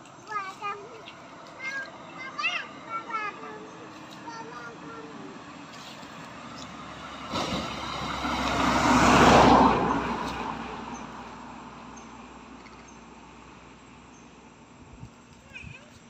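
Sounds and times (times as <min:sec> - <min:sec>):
vehicle driving past: 0:05.0 - 0:13.7.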